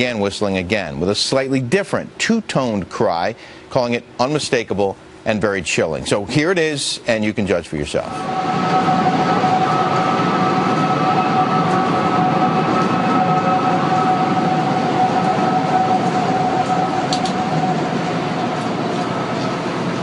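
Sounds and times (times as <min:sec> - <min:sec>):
two-toned wind whistle: 0:08.0 - 0:20.0
rush of wind: 0:08.1 - 0:20.0.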